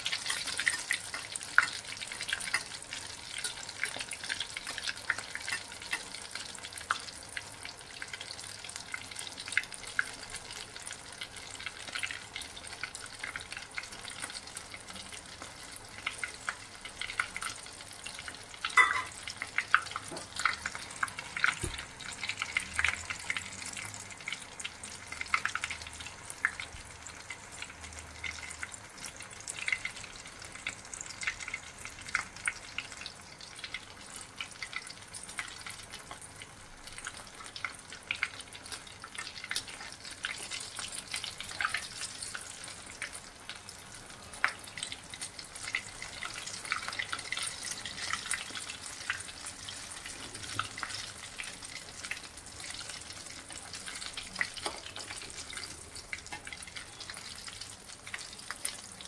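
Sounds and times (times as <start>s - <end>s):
bread deep-frying with crackles: 0.0s - 59.0s.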